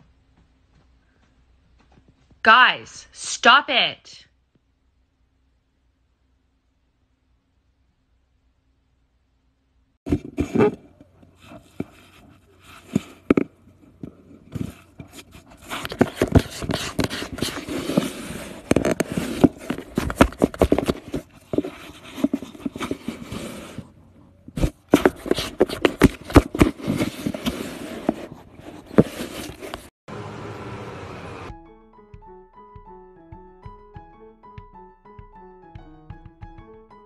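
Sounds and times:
cat scratching cardboard: 0:10.1 - 0:29.9.

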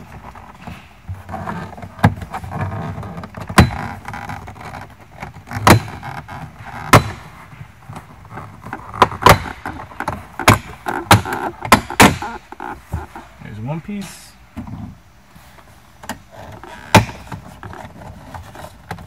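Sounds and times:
plastic panel rustling: 0:14.0 - 0:19.0.

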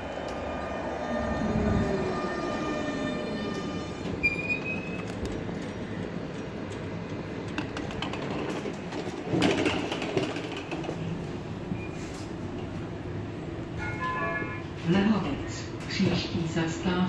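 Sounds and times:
tram motor whine: 0:00.0 - 0:15.9
tram wheels rumbling on rails: 0:00.0 - 0:17.0
wheel squeal and clatter: 0:04.2 - 0:05.1.

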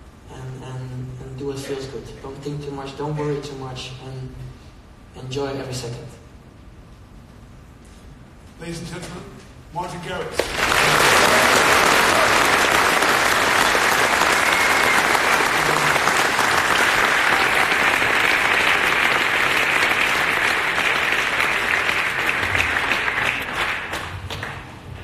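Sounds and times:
audience applauding: 0:10.4 - 0:25.0.

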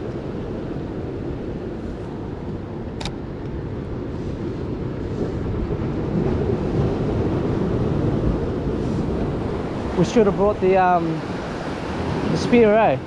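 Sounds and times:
wind on microphone: 0:00.0 - 0:13.0
sharp click: 0:03.0 - 0:03.2
surf washing against rocks: 0:03.6 - 0:13.0.

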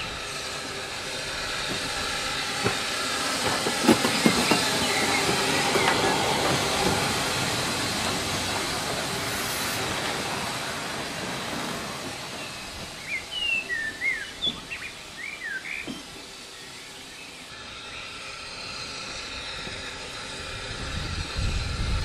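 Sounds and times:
steam locomotive hissing: 0:00.0 - 0:22.0
train wheels clicking over rail joints: 0:00.0 - 0:22.0
birds chirping: 0:02.4 - 0:09.3, 0:09.9 - 0:19.5.

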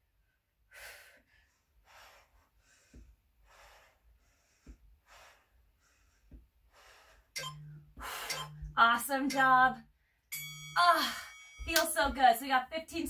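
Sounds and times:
woman breathing quickly: 0:00.6 - 0:08.6.

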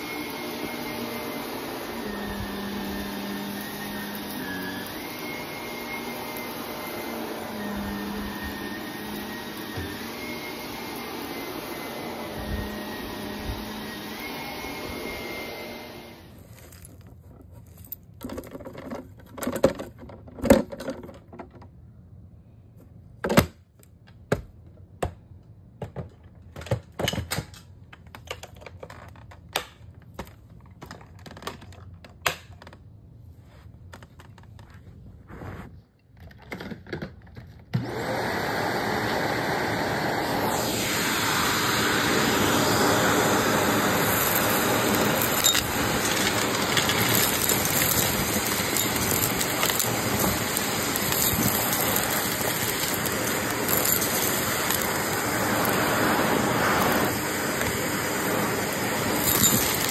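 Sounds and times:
vacuum cleaner running: 0:00.0 - 0:16.4, 0:37.8 - 0:59.9.

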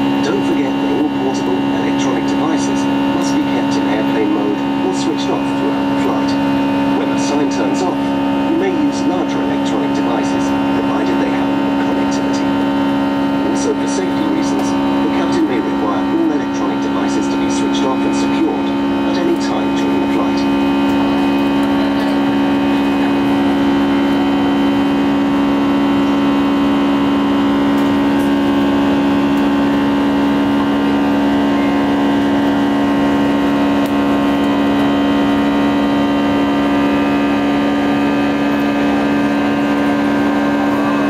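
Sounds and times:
jet engine cabin drone: 0:00.0 - 0:41.0.

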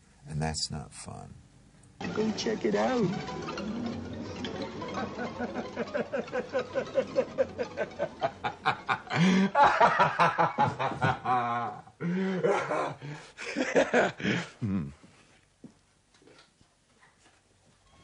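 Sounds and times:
person laughing: 0:04.8 - 0:15.0.

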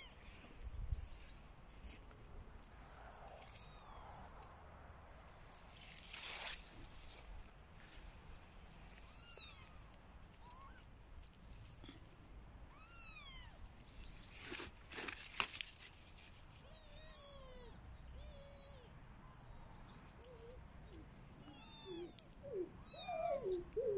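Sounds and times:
rustling: 0:00.1 - 0:04.8, 0:05.4 - 0:12.3, 0:13.4 - 0:18.3
kittens mewing: 0:09.0 - 0:10.9, 0:16.6 - 0:23.9.

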